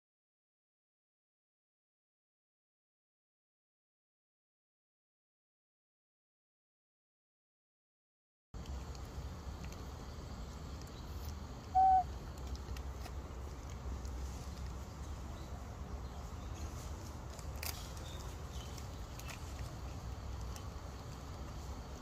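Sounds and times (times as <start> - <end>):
baby monkey cooing: 11.7 - 12.1.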